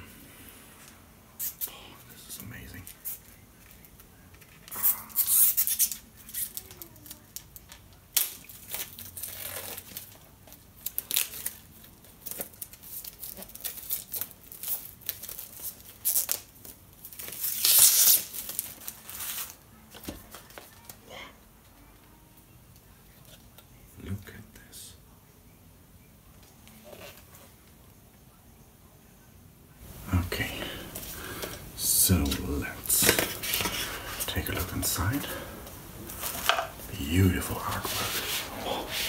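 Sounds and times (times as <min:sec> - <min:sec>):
plastic wrap and cardboard tearing: 0:04.4 - 0:20.7.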